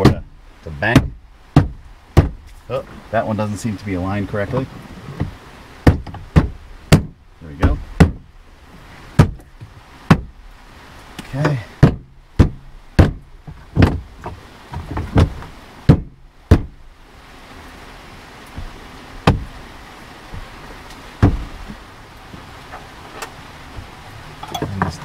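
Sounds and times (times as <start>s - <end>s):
hand banging on plastic panel: 0.0s - 2.5s, 4.5s - 8.3s, 9.2s - 10.4s, 11.4s - 16.8s, 18.6s - 19.6s, 21.2s - 21.8s.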